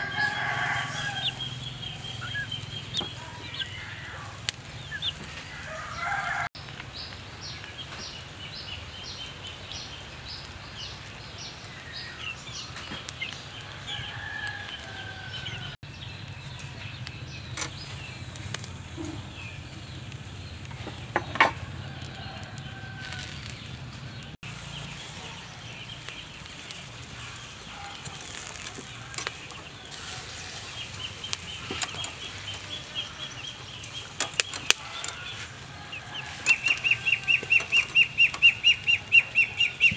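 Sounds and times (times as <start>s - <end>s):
chickens clucking: 0.0s - 6.5s, 18.5s - 39.9s.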